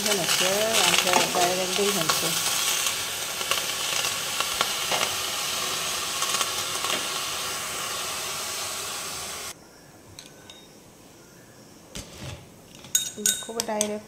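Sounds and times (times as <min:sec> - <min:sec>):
vegetables sizzling in a wok: 0:00.0 - 0:09.6.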